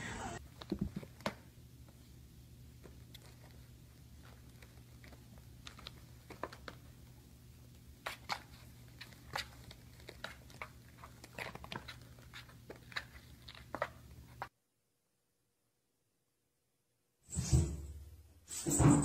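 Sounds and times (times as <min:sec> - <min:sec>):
kitten claws scratching cardboard: 0:07.9 - 0:14.5.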